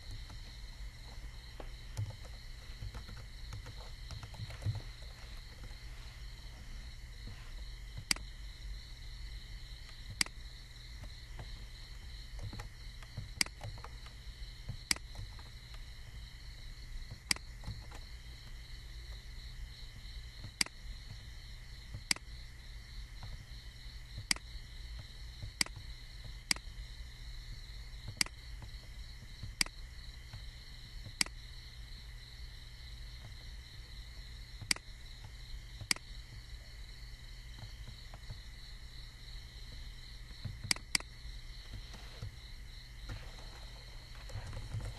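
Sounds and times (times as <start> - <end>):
computer mouse clicking: 0.0 - 5.7, 8.0 - 8.3, 9.8 - 10.4, 12.3 - 14.2, 14.8 - 15.8, 22.0 - 22.3, 24.2 - 24.5, 25.4 - 26.7, 28.0 - 28.8, 29.4 - 31.4, 34.6 - 34.9, 35.8 - 36.2, 40.4 - 42.4, 43.1 - 44.9
low hum: 0.0 - 23.2, 23.9 - 44.9.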